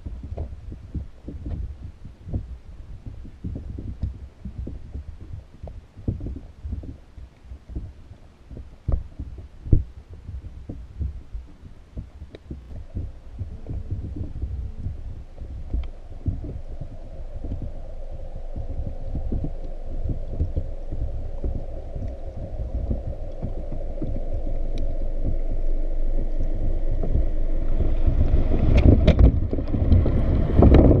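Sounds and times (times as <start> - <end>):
muffled underwater knocks and thumps: 0.0 - 31.0
rushing water: 12.7 - 31.0.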